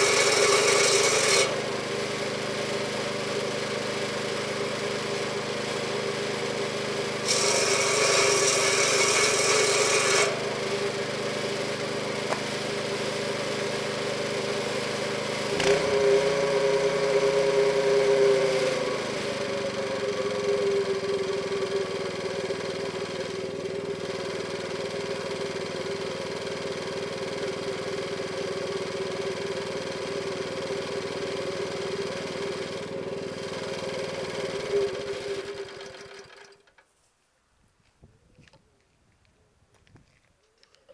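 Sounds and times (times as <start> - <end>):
saw blade cutting log: 0.0 - 36.5
petrol engine running: 0.0 - 36.8.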